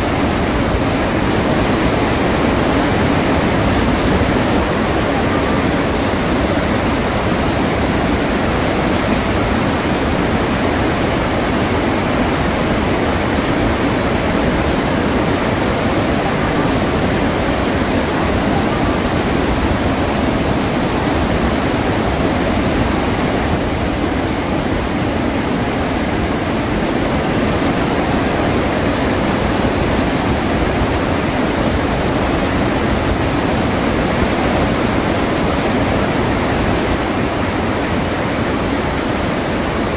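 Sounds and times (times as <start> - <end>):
waterfall rushing: 0.0 - 39.9.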